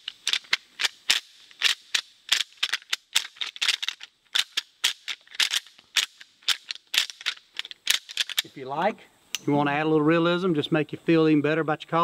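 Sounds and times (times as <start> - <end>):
rattle bag clattering: 0.0 - 8.5.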